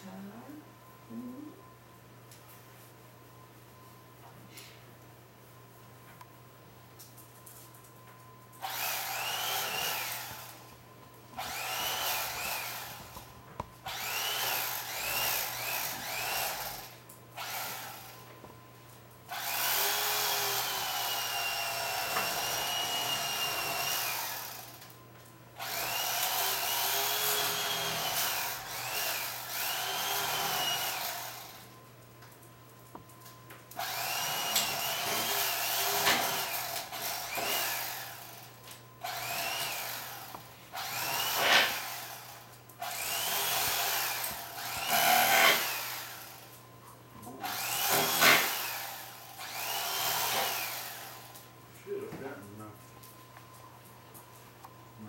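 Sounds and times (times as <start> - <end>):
electric carving knife whining: 8.6 - 10.8, 11.4 - 18.3, 19.3 - 25.0, 25.6 - 31.8, 33.7 - 46.6, 47.4 - 51.5.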